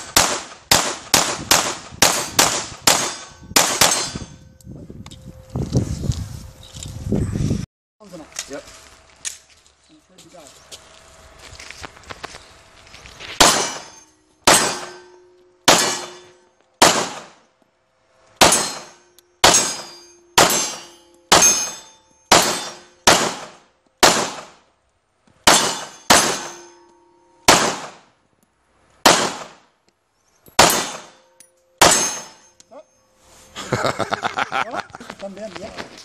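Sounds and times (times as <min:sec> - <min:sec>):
pistol shots with echo: 0:00.1 - 0:04.2, 0:13.4 - 0:13.8, 0:14.4 - 0:15.0, 0:15.7 - 0:17.4, 0:18.4 - 0:24.6, 0:25.5 - 0:26.6, 0:27.5 - 0:28.0, 0:29.0 - 0:29.6, 0:30.6 - 0:31.2, 0:31.8 - 0:32.3.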